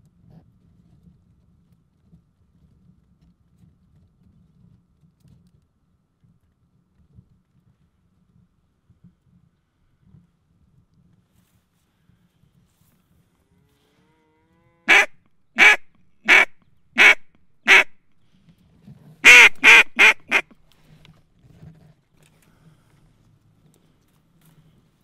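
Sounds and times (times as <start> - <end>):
duck call quacks: 14.9 - 17.9, 19.2 - 20.6.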